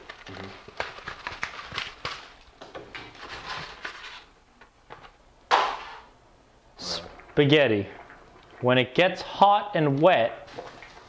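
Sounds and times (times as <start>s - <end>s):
pasta box rustling: 0.0s - 4.3s.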